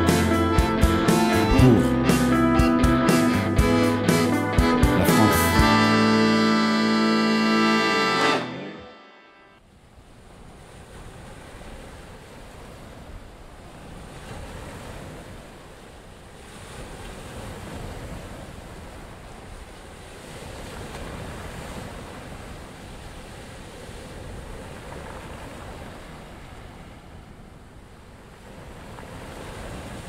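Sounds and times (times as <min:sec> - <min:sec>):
small sea waves washing ashore: 0:09.6 - 0:30.0.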